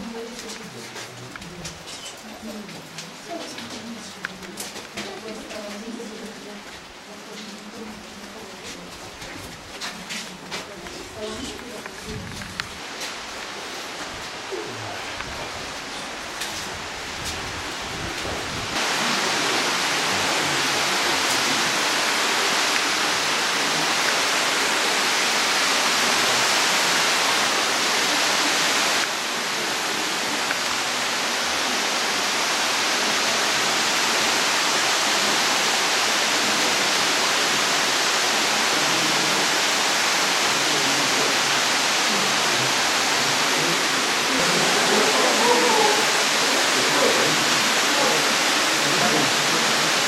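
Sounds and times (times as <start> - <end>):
underground stream rushing: 10.3 - 50.0.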